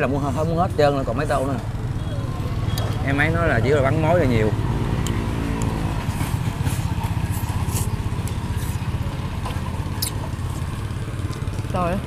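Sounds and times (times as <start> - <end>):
motorbike engine rumbling: 0.0 - 12.0.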